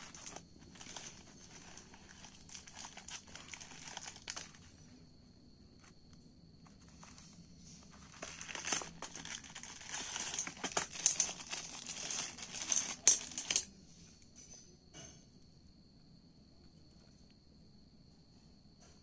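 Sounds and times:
plastic packaging crinkling: 0.0s - 4.7s, 6.7s - 13.7s.

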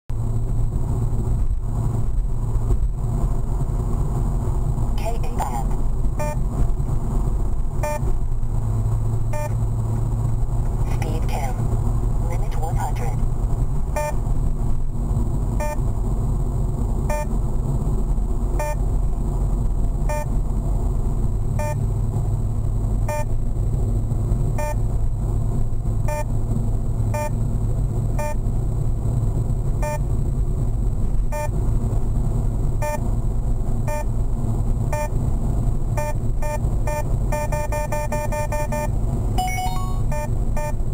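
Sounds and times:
car cabin road and engine rumble: 0.1s - 40.9s
radar detector beeping: 6.2s - 6.4s, 7.8s - 8.1s, 9.3s - 9.6s, 14.0s - 14.2s, 15.6s - 15.8s, 17.1s - 17.3s, 18.6s - 18.8s, 20.1s - 20.3s, 21.6s - 21.8s, 29.8s - 30.0s, 31.3s - 31.5s, 33.9s - 34.1s, 36.0s - 40.8s
different alert tone: 38.2s - 40.3s.

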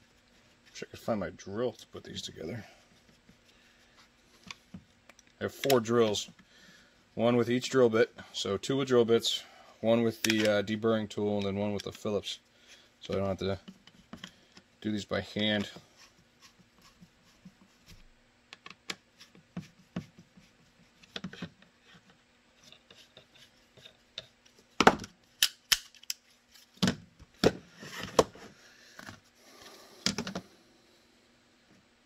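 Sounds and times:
hard plastic parts clacking: 30.0s - 30.4s.

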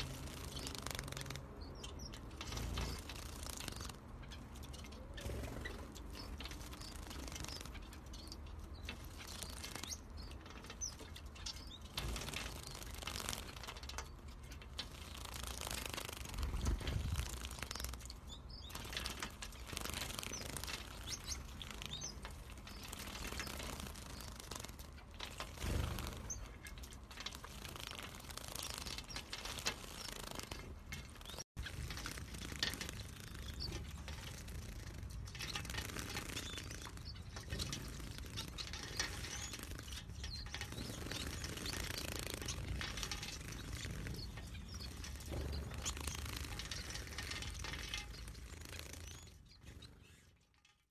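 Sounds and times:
bird wings fluttering: 0.0s - 1.4s, 11.9s - 13.8s, 14.8s - 18.1s, 18.7s - 26.6s, 27.2s - 49.2s.

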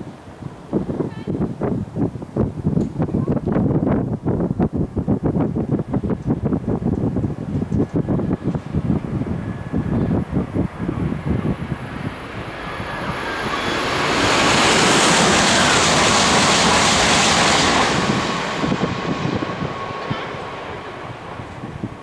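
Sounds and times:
train rushing past: 8.0s - 22.0s.

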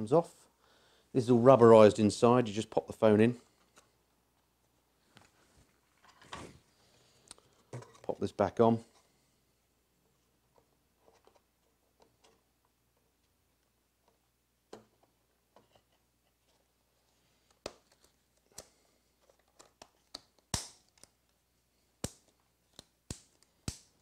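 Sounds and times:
sharp plastic snap: 19.7s - 21.1s, 22.0s - 24.0s.

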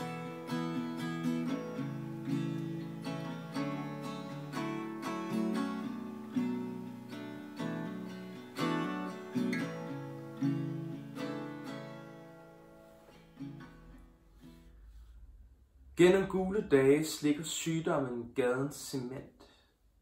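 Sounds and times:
acoustic guitar chords: 0.0s - 15.2s.

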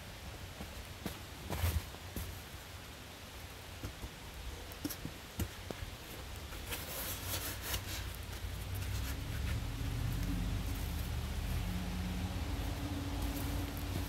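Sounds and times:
light knocks and scrapes: 4.8s - 11.0s
low steady rumble: 8.3s - 14.0s.

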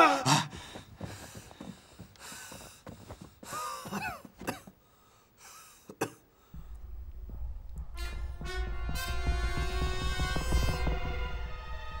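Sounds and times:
strained breaths: 0.0s - 6.8s
man coughing: 3.8s - 4.7s, 5.9s - 6.2s.

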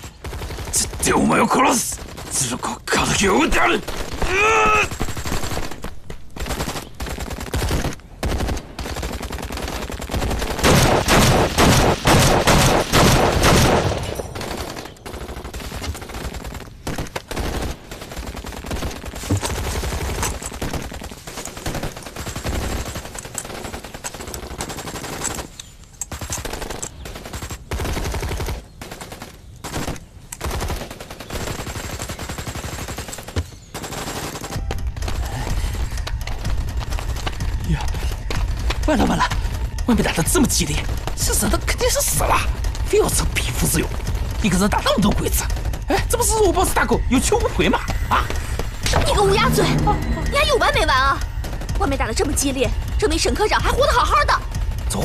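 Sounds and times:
gunfire bursts: 0.0s - 46.5s.

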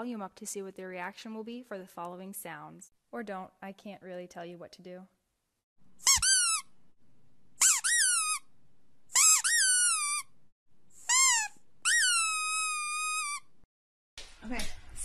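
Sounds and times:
high-pitched squeaks: 6.0s - 6.7s, 7.6s - 8.5s, 9.1s - 10.3s, 11.0s - 13.5s.

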